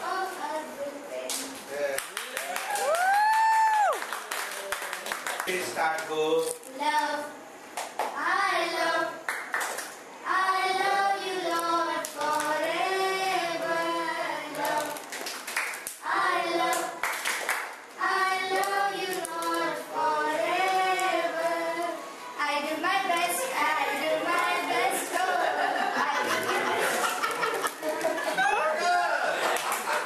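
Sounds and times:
hand claps: 1.3 - 6.1, 7.8 - 8.2, 9.3 - 10.0, 14.6 - 16.0, 16.7 - 17.8, 29.5 - 30.0
girls singing together: 8.2 - 9.4, 10.2 - 15.2, 16.0 - 17.4, 18.0 - 28.8.

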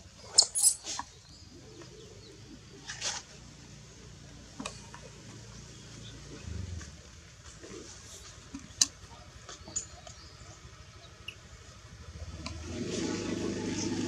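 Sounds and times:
baby monkey squeaking: 0.3 - 0.9.

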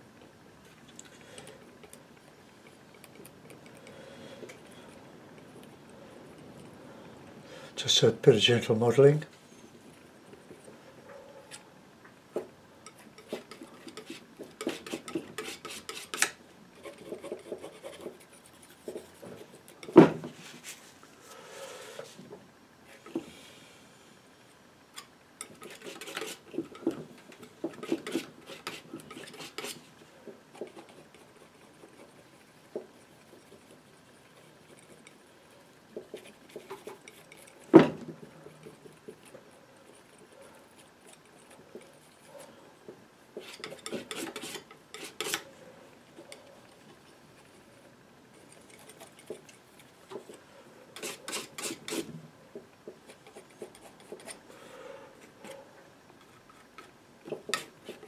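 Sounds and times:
painting knife scraping paint: 1.0 - 6.7, 12.8 - 20.8, 25.0 - 45.5, 48.3 - 52.2, 52.8 - 54.5, 56.2 - 58.0.

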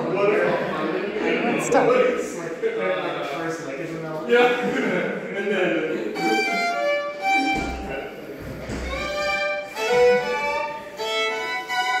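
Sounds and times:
fiddles playing lively tune: 6.1 - 12.0.

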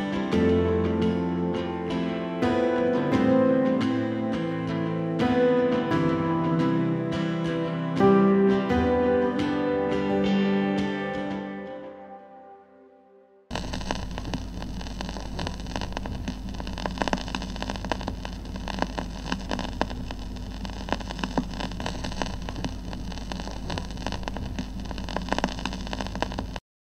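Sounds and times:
vinyl record crackles and pops: 0.0 - 10.4, 13.5 - 26.6
low hum: 13.5 - 26.6
steady hiss: 13.5 - 26.6.

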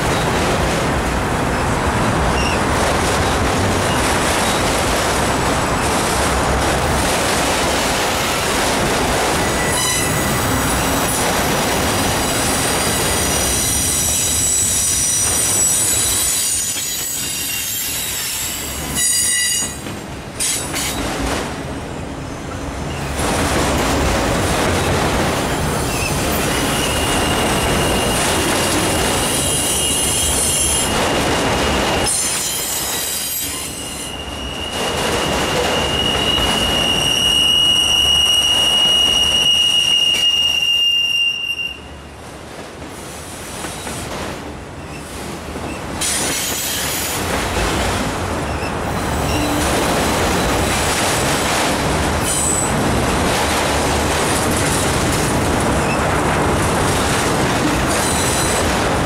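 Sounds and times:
train wheels rumbling on rail: 0.0 - 59.0
high-pitched wheel squeal: 31.6 - 41.8.

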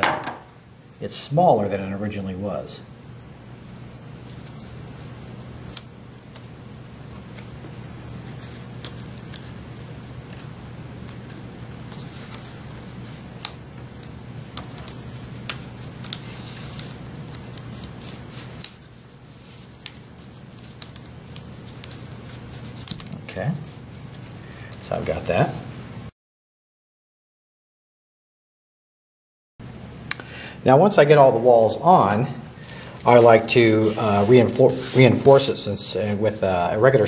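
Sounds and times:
steady low hum: 0.0 - 26.1, 29.6 - 37.0
cardboard scraping and rustling: 33.0 - 35.6.

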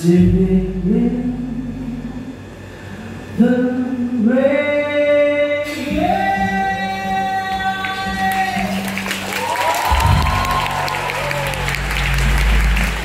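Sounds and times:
piano: 5.6 - 13.0.

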